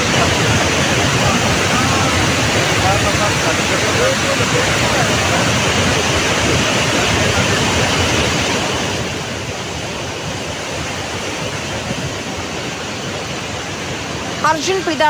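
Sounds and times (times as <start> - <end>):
river rushing in flood: 0.0 - 15.0.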